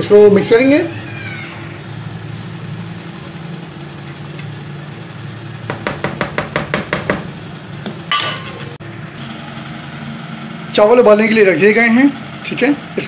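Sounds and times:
ladle knocking on frying pan: 5.7 - 7.3.

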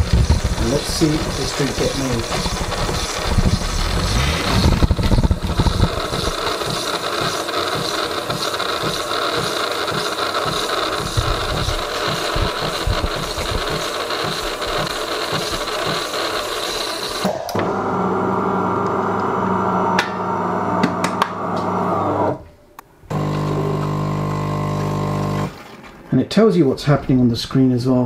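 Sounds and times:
steam hiss frothing milk: 0.0 - 17.5.

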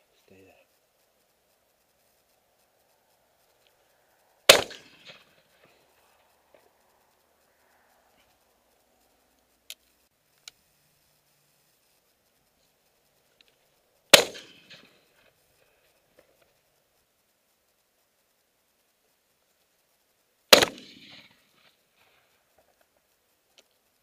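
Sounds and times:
faint clicks: 0.0 - 24.0
shotgun shot: 4.5 - 5.8, 14.1 - 15.0, 20.5 - 21.4.

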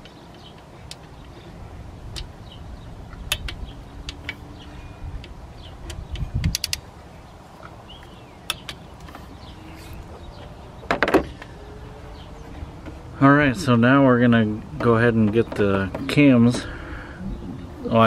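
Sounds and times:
tools clicking and knocking on engine: 0.0 - 1.4, 3.1 - 4.4, 5.2 - 6.9, 14.5 - 16.5
outdoor background noise: 0.0 - 18.0.

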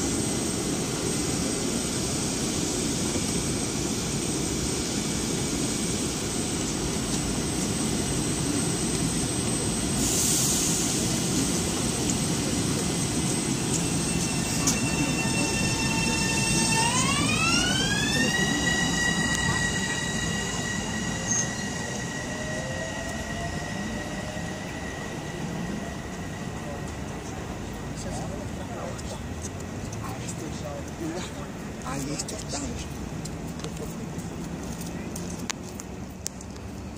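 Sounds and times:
electric train running: 0.0 - 35.6
brief hiss: 10.0 - 11.2
traction motor whine: 11.9 - 27.8.

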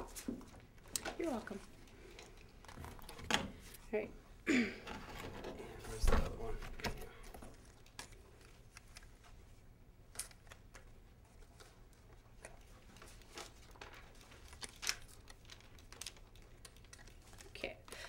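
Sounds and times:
paper and card rustling: 5.1 - 18.0.

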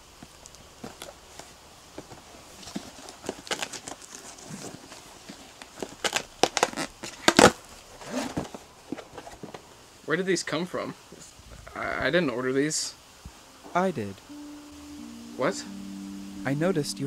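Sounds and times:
packing tape ripping: 2.7 - 5.0, 5.6 - 8.4.

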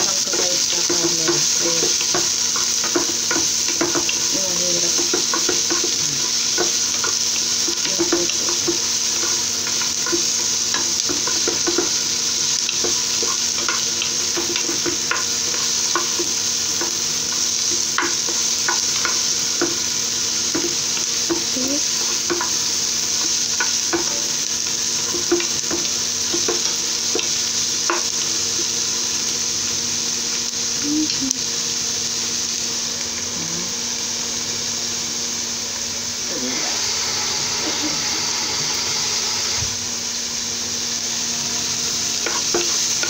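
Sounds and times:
onions sizzling in oil: 0.0 - 43.0.

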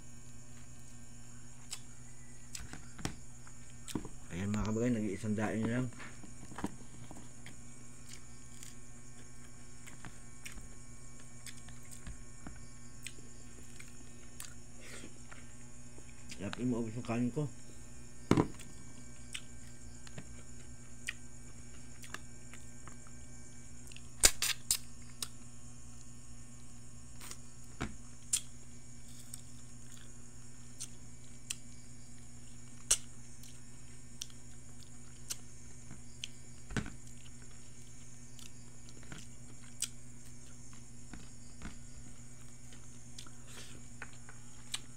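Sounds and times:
low electrical hum: 0.0 - 44.9
person chewing: 1.6 - 1.9, 6.9 - 12.0, 13.0 - 16.4, 18.6 - 21.2, 21.9 - 23.0, 28.2 - 28.5, 29.1 - 30.1, 34.2 - 35.4, 37.0 - 40.8, 42.4 - 44.9.

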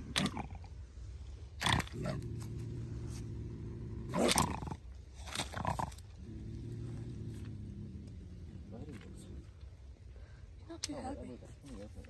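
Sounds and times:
bobcat growling: 0.0 - 0.8, 1.6 - 9.5.

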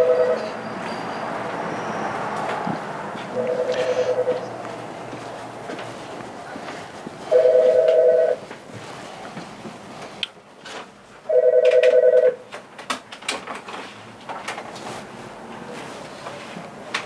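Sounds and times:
telephone ringing: 0.0 - 0.6, 3.3 - 4.5, 7.3 - 8.4, 11.3 - 12.4.

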